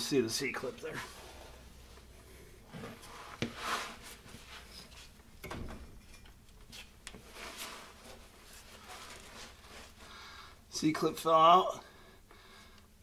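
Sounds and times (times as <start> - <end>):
metal clunks and scrapes: 5.4 - 6.4.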